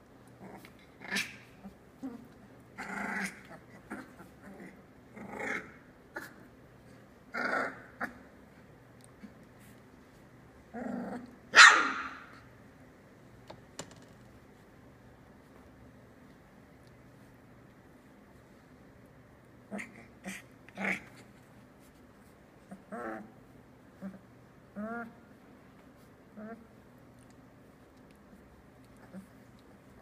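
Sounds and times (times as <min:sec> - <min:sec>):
puppies growling and yapping: 0:00.1 - 0:09.8, 0:10.6 - 0:11.5, 0:22.6 - 0:25.4, 0:26.0 - 0:30.0.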